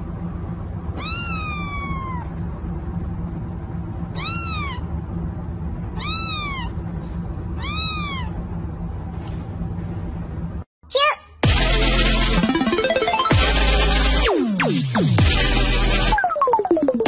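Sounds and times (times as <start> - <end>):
steady low hum: 0.0 - 10.7
kitten meowing: 1.0 - 2.3, 4.2 - 4.9, 6.0 - 6.8, 7.6 - 8.4.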